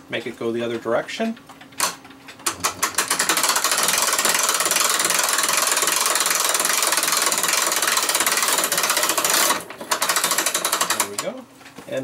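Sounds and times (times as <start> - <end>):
ratchet clicking rapidly: 2.5 - 11.3.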